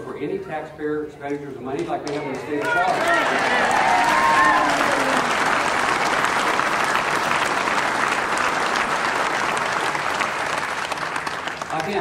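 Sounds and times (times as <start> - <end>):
large crowd applauding: 2.1 - 12.0.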